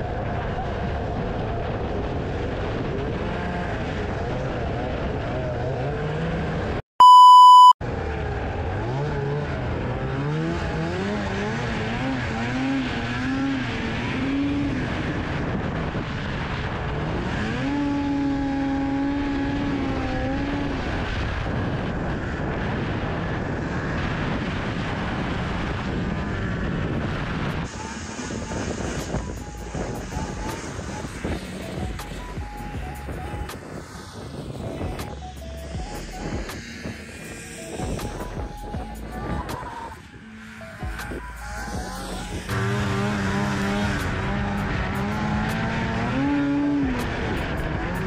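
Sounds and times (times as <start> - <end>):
snowmobile engine revving: 0.1 - 6.8, 8.0 - 32.3, 39.0 - 48.0
electronic beep: 7.0 - 7.8, 37.6 - 40.0.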